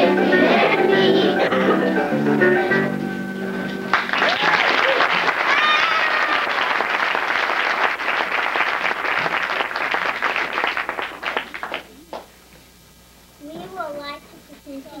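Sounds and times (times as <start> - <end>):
audience applause: 3.9 - 12.2.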